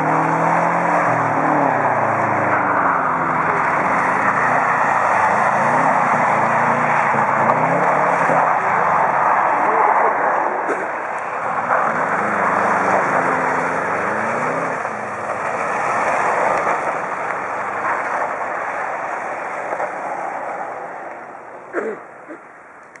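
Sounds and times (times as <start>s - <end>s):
car engines revving: 0.0s - 23.0s.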